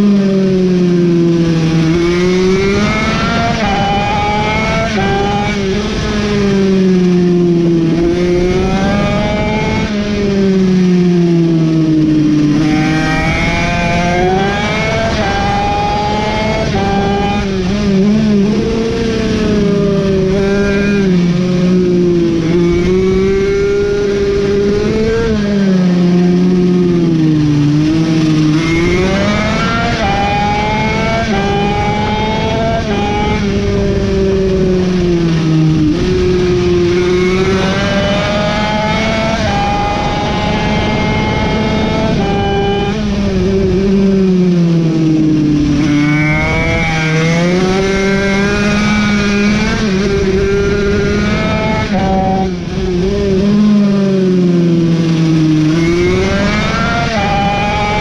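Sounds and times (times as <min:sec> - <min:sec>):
mini bike engine revving: 0:12.3 - 0:44.3, 0:45.4 - 0:58.0.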